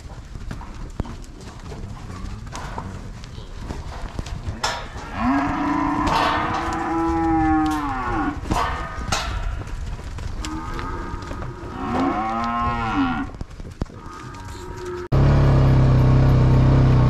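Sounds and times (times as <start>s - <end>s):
cattle mooing: 4.6s - 9.3s, 10.3s - 15.2s.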